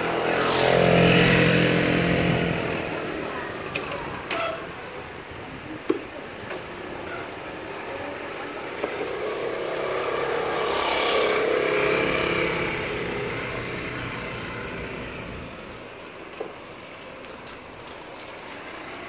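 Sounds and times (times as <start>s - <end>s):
vehicle passing: 0.0s - 3.6s, 7.8s - 15.9s.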